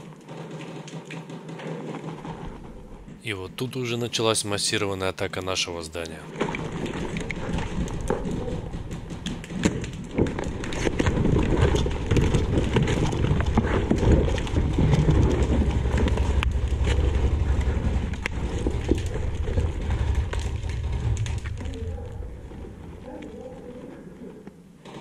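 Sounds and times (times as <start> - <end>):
sharp clicks and knocks: 0.0 - 3.2, 6.0 - 23.4
footsteps crunching on rubble: 5.4 - 24.0
low rumble of rubbing on microphone: 6.4 - 24.4.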